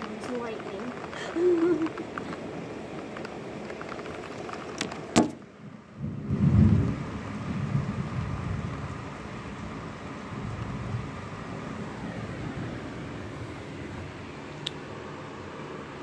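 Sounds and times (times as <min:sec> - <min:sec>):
thunder rumble: 0:00.0 - 0:14.5
heavy rain pouring: 0:00.0 - 0:16.0.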